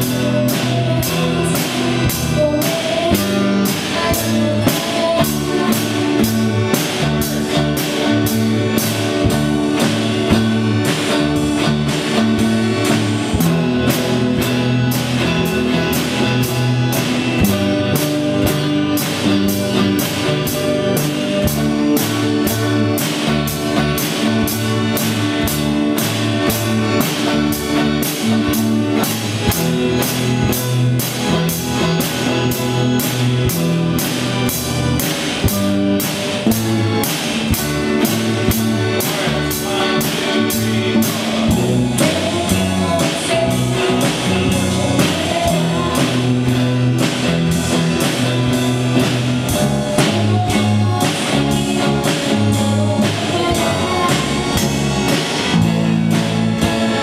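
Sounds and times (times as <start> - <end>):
person singing: 0.0 - 8.8, 37.7 - 47.5, 48.1 - 56.1
live rock band playing: 0.0 - 57.0.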